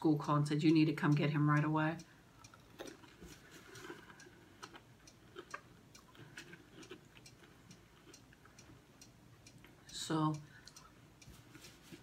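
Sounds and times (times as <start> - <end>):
person chewing crunchy food: 2.4 - 8.8.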